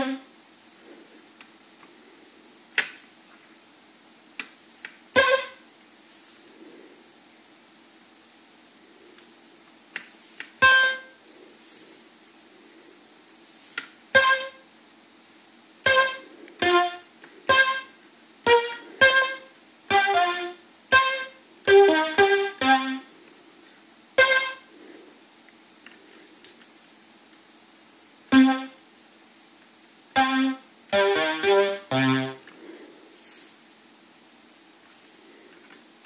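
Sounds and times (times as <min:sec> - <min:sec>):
string synthesizer chord stabs: 0:28.3 - 0:28.8, 0:30.2 - 0:32.4.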